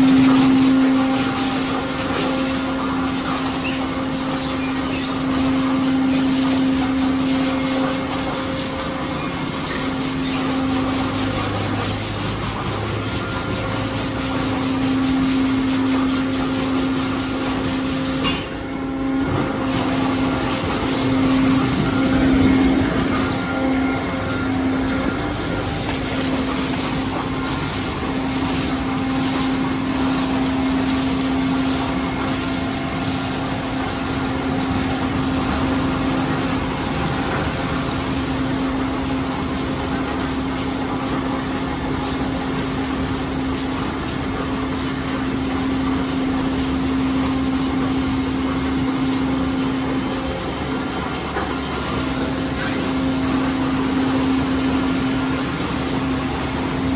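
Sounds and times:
machine hum: 0.0s - 56.9s
water spraying: 0.0s - 56.9s.

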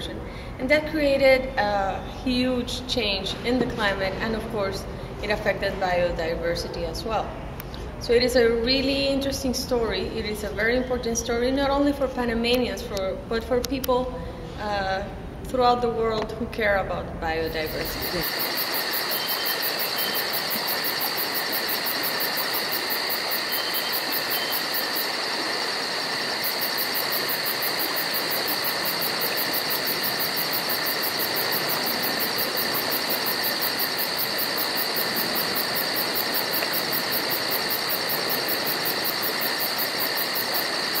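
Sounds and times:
insect pulsing chirp: 17.4s - 41.0s
insects droning: 17.4s - 41.0s.

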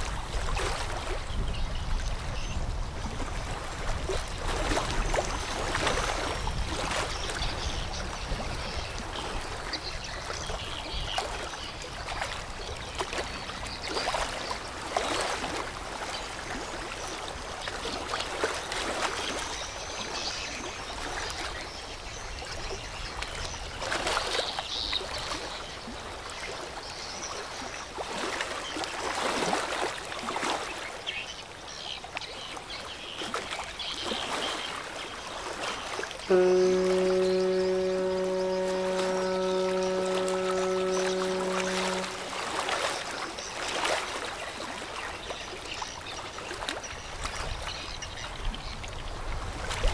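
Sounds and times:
river water splashing: 0.0s - 10.6s, 35.4s - 45.0s.

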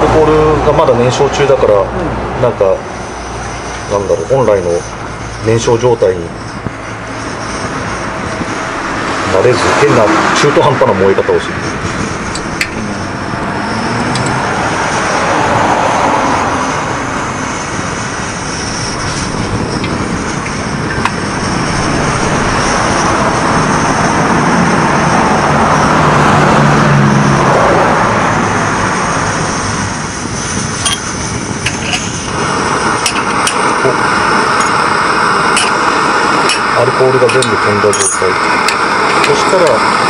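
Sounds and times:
pressure stove burner rushing: 0.0s - 40.0s.

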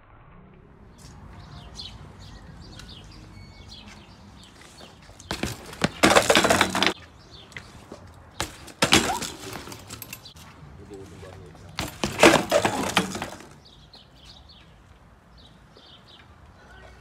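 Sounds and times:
birds chirping: 0.8s - 17.0s
bike crashing onto brick paving: 4.8s - 7.0s, 7.7s - 10.3s, 11.8s - 13.7s.

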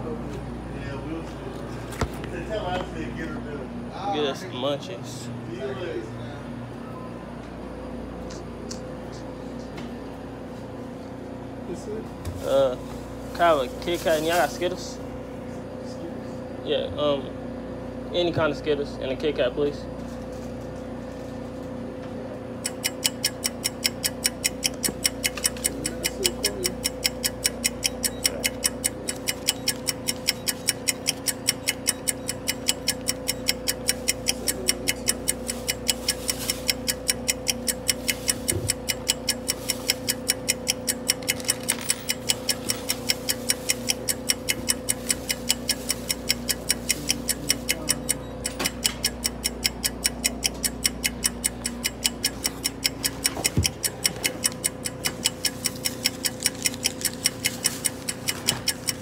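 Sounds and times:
low electrical hum: 0.0s - 59.0s
rapid ticking: 22.6s - 59.0s.

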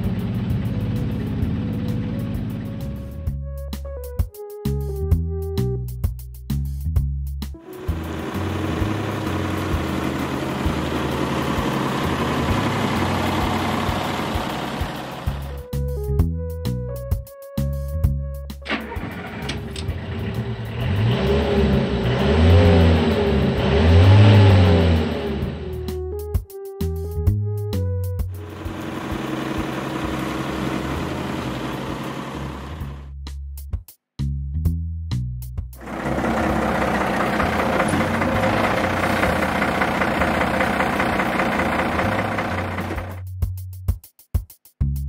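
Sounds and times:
truck engine revving: 7.6s - 15.6s, 18.7s - 26.0s, 28.4s - 33.1s, 35.8s - 43.2s.

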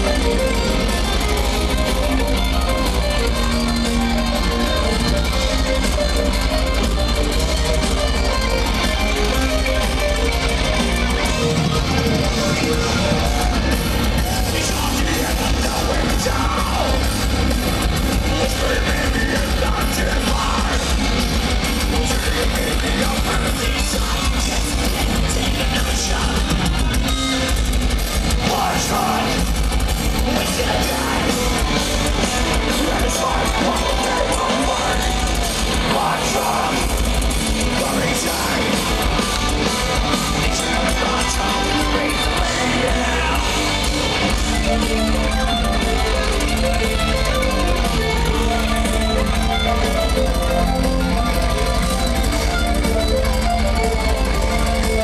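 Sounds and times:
distorted electric guitars: 0.0s - 55.0s
drums: 0.0s - 55.0s
keyboards: 0.0s - 55.0s
harsh vocals: 12.0s - 27.1s, 28.2s - 44.8s.

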